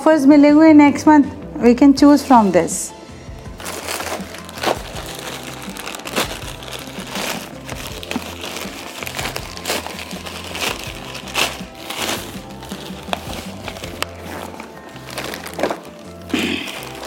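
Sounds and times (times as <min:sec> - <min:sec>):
soft background music: 0:00.0 - 0:17.0
plastic bag crinkling: 0:03.5 - 0:17.0.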